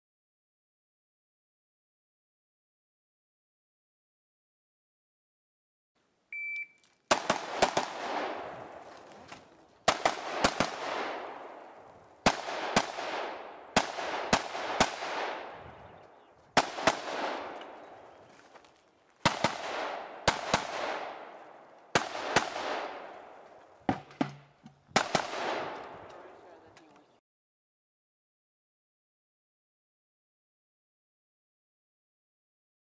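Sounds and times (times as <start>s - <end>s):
rifle gunshots with echo: 7.1s - 9.0s, 9.8s - 16.0s, 16.6s - 18.2s, 19.2s - 23.5s, 24.9s - 26.4s.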